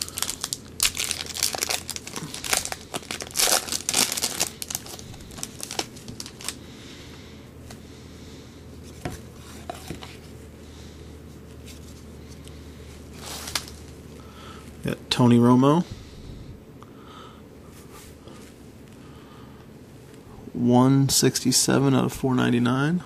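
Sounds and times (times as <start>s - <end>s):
foil wrapper tearing and crinkling: 0.0s - 6.6s, 13.2s - 14.0s
handling of cards: 0.0s - 6.6s, 8.8s - 10.4s, 11.4s - 14.1s.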